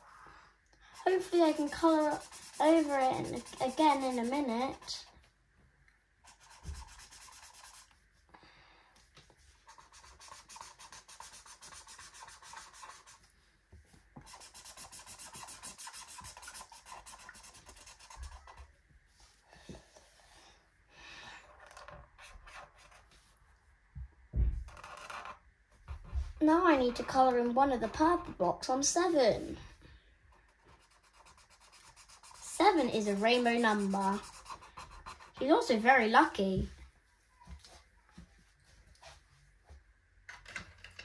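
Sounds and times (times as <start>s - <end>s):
marker scribbling on paper: 1.0s - 5.1s, 6.2s - 7.9s, 9.5s - 13.3s, 14.2s - 18.7s, 30.5s - 35.9s.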